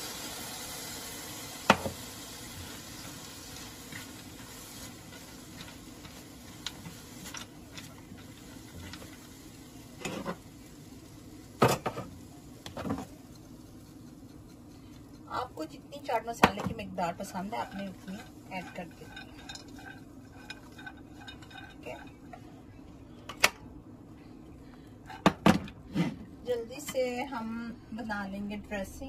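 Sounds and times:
nuts sizzling in a frying pan: 0:00.0 - 0:14.3, 0:15.3 - 0:22.3.

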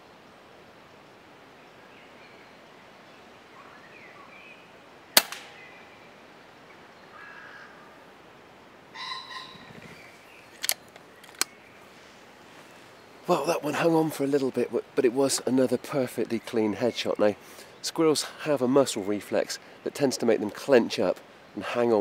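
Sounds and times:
small sharp clicks: 0:05.2 - 0:05.6, 0:10.5 - 0:11.6
air rifle shot: 0:05.2 - 0:05.7
faint bird calls: 0:05.5 - 0:08.1, 0:08.9 - 0:14.0.

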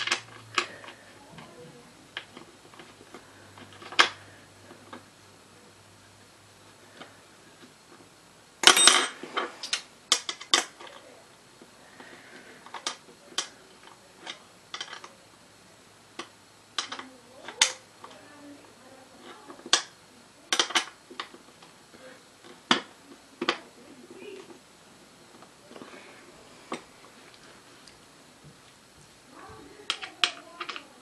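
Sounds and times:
bolts and tool clinking on metal: 0:08.6 - 0:10.4.

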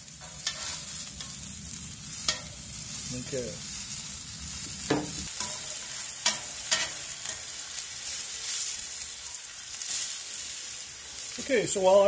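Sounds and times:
onions sizzling in oil: 0:00.0 - 0:12.0
metal tongs clicking on griddle: 0:00.2 - 0:01.4, 0:02.2 - 0:02.6, 0:05.0 - 0:07.5.

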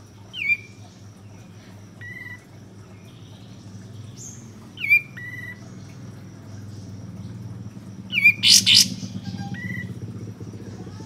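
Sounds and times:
low steady hum: 0:00.0 - 0:11.0
bird sharp downward calls: 0:08.1 - 0:10.0.

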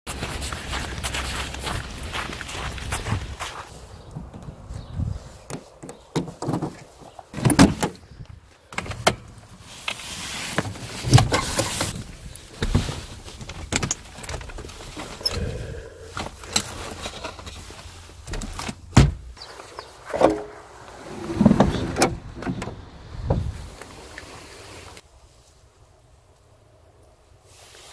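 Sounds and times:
car door opened and shut: 0:18.3 - 0:19.4, 0:20.1 - 0:23.7.

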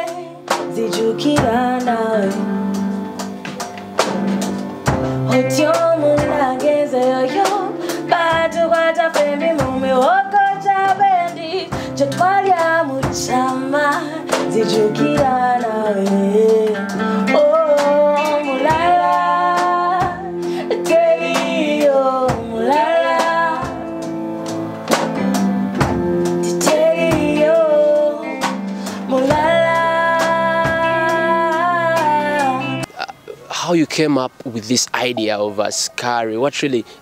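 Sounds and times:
woman singing: 0:00.0 - 0:03.0, 0:05.2 - 0:24.1, 0:26.4 - 0:32.9
drum kit: 0:00.0 - 0:35.6
acoustic guitar: 0:00.0 - 0:35.9
keyboard: 0:00.0 - 0:37.0.

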